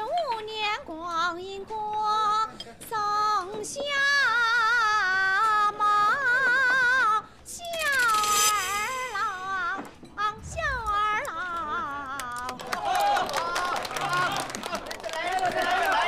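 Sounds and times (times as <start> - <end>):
woman singing slowly with vibrato: 3.0 - 12.7.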